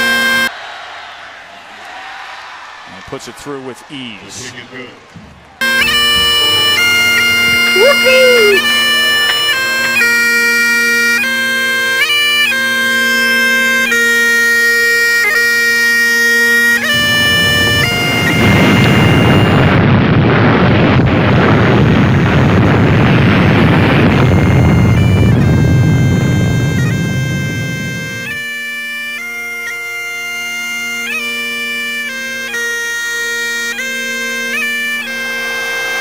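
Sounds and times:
bagpipes playing: 0.0 - 0.5, 5.6 - 36.0
huge explosion roar: 17.0 - 26.6.

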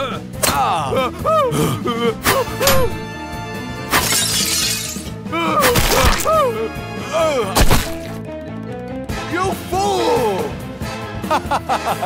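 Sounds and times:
background music: 0.0 - 12.0
shattering crash: 3.9 - 5.1, 5.7 - 6.3, 7.6 - 8.2.

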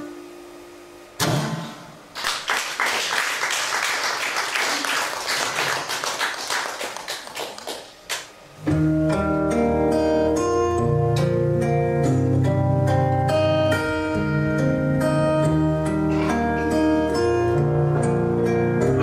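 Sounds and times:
audience applauding: 2.2 - 8.3
acoustic guitar playing: 8.6 - 19.0.

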